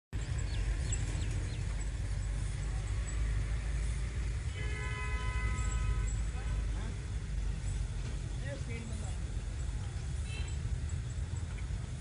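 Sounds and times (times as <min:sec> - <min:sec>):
bird chirping: 0:00.2 - 0:03.3
distant train horn: 0:03.8 - 0:06.9.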